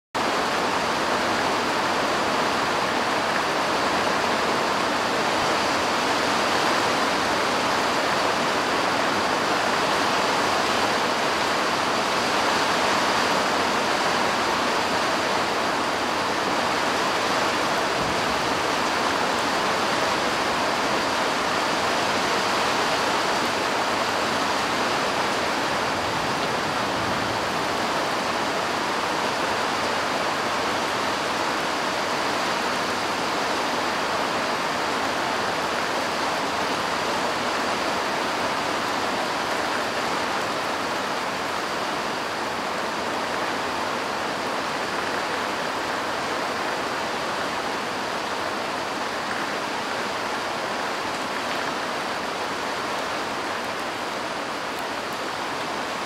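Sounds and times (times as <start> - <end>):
steady rain falling: 0.2 - 56.0.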